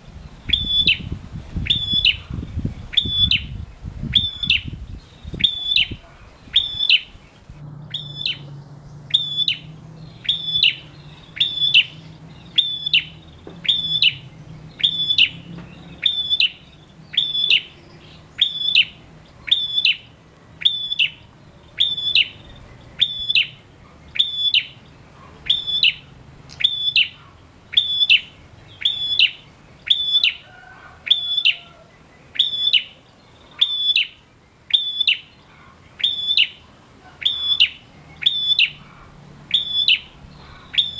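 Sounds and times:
bird calling high sharp note: 7.9 - 8.5, 9.1 - 14.2.

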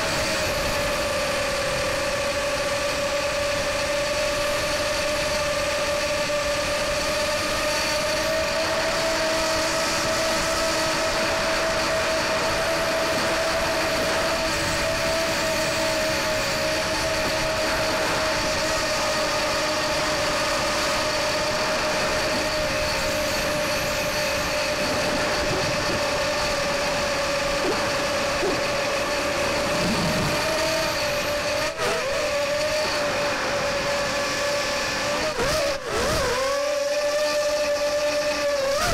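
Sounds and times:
model plane motor whine: 0.0 - 38.9
rushing air noise: 21.6 - 31.6.

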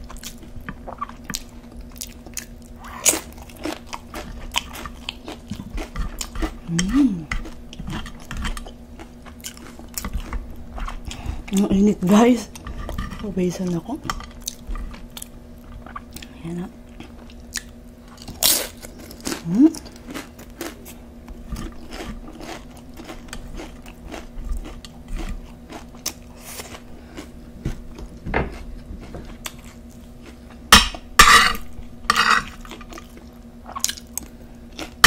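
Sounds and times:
crunching and chewing chips: 0.0 - 11.7, 14.1 - 30.7, 31.6 - 35.0
chips and utensils clattering on plate: 31.2 - 32.9.

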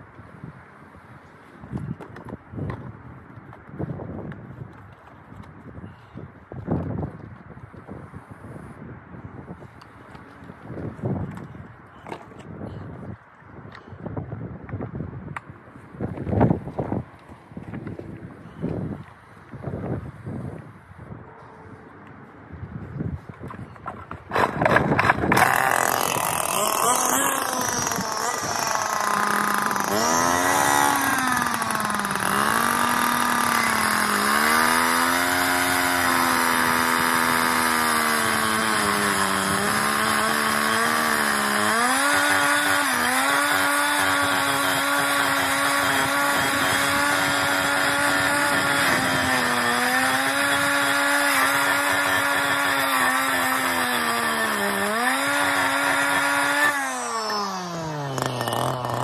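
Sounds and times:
disc cutter cutting concrete: 24.4 - 59.0.

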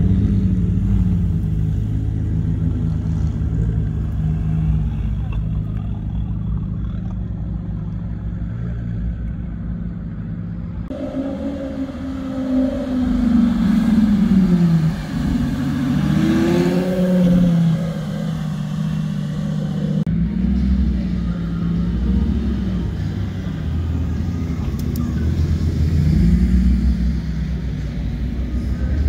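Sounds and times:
low engine rumble: 0.0 - 29.0
sports car engine revving: 10.9 - 29.0.

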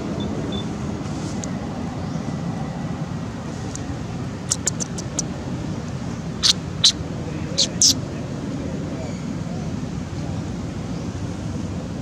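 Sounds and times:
sharp clicks: 4.5 - 5.2.

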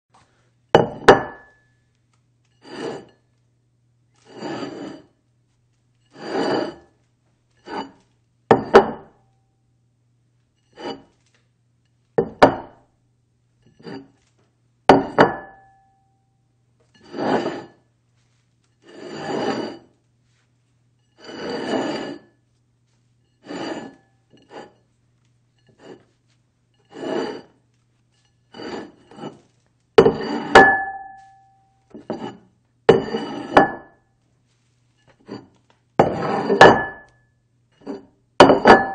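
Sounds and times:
dish scraping across table: 2.6 - 3.2, 4.2 - 5.1, 6.1 - 6.9, 7.6 - 9.1, 10.7 - 11.1, 13.7 - 14.2, 17.0 - 17.8, 18.8 - 19.9, 21.2 - 22.3, 23.4 - 24.8, 25.6 - 26.1, 26.8 - 27.6, 28.5 - 33.9, 35.0 - 37.1, 37.8 - 38.9.

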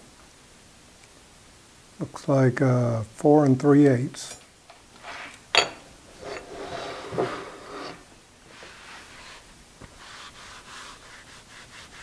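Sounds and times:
vise scraping against table: 5.0 - 9.0
rag rubbing on metal table: 6.1 - 9.4.

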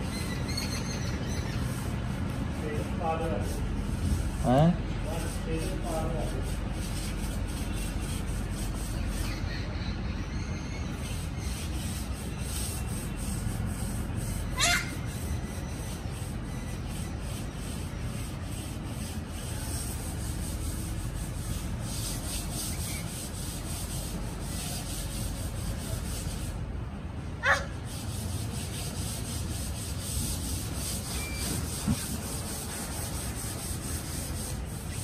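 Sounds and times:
short high squeak: 31.0 - 32.0.

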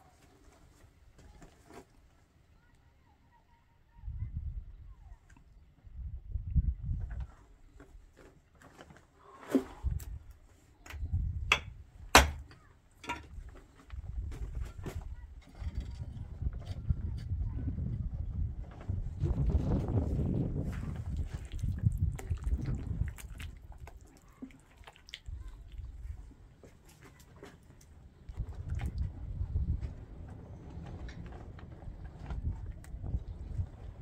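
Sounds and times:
hands squeezing wet mud: 20.6 - 29.4
grit clicking and crunching: 20.6 - 34.0.

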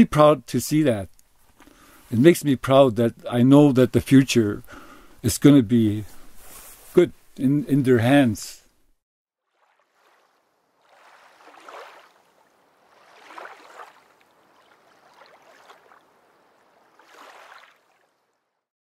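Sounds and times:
faint water sloshing: 9.4 - 18.6.

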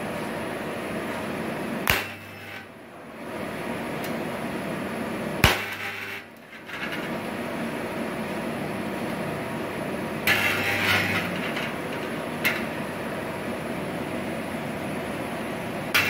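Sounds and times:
steady background noise: 0.0 - 16.0
spot welder snap and hum: 1.1 - 2.7, 5.4 - 7.2, 10.2 - 12.9.

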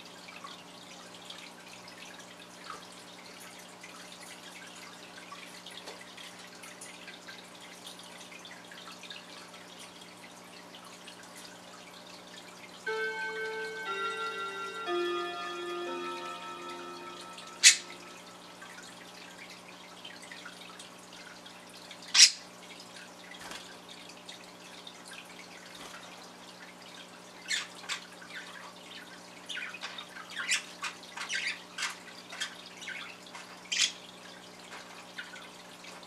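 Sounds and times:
chiming tone: 12.9 - 19.0.

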